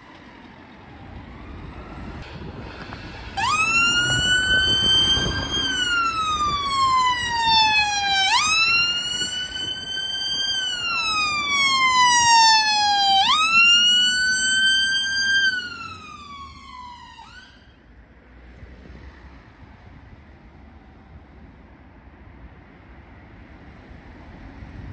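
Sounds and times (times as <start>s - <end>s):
emergency vehicle siren wailing: 0.0s - 17.8s.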